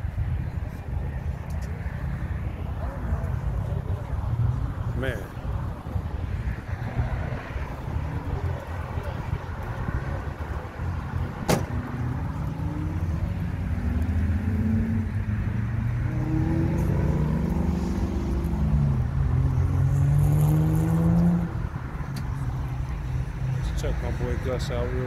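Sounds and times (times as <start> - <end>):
car engine accelerating: 7.2 - 22.8.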